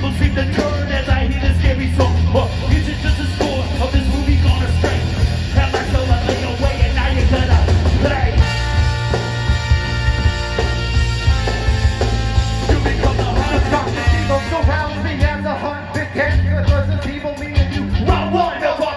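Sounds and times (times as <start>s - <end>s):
vocalist singing: 0.0s - 9.1s, 12.6s - 18.9s
ska band playing live: 0.0s - 18.9s.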